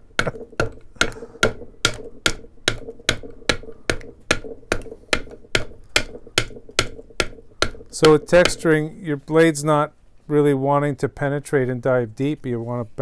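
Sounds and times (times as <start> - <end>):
adze tapping wood: 0.0 - 8.9.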